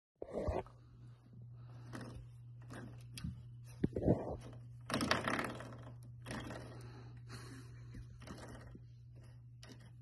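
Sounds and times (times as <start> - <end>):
spring buzzing rattle: 4.2 - 10.0.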